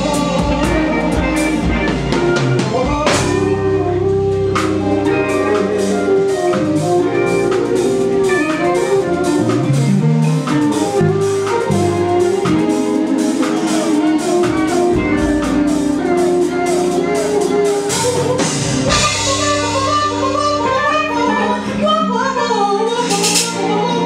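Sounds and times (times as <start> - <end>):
drum kit: 0.0 - 21.8, 22.9 - 24.0
electric guitar: 0.0 - 24.0
woman singing: 10.4 - 24.0.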